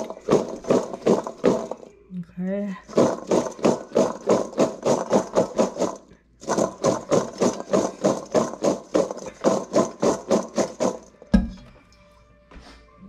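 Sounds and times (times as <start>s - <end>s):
crabapples rattling in steel bowl: 0.0s - 1.9s, 2.8s - 11.2s.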